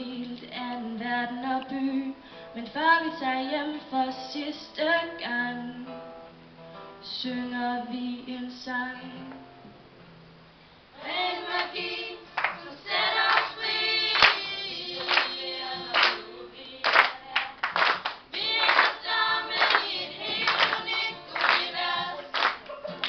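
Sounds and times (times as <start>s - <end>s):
young voices singing together: 11.0s - 23.0s.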